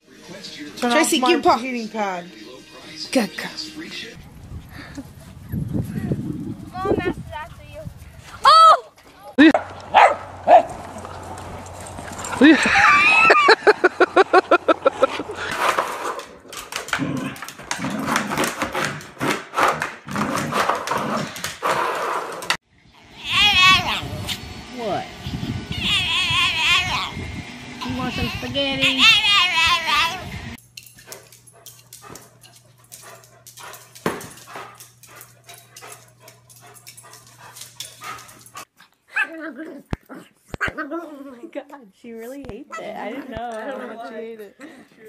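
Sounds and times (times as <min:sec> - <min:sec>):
dog yipping: 0:28.1 - 0:30.2
dog making clicky sounds: 0:30.8 - 0:38.7.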